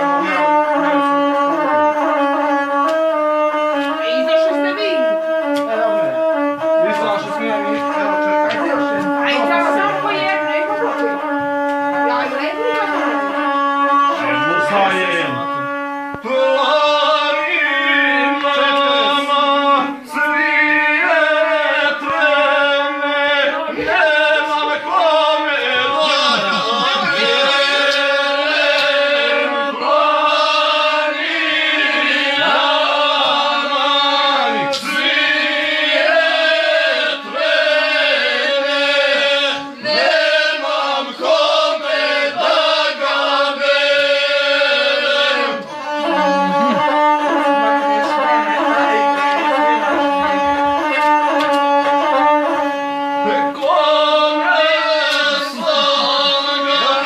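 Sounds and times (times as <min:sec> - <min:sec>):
bowed single-string fiddle: 0:00.0 - 0:57.0
man singing chanted song: 0:16.2 - 0:51.4, 0:52.0 - 0:57.0.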